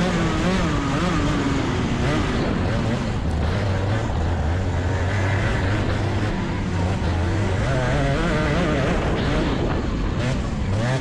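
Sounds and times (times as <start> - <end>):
kart engine running: 0.0 - 11.0.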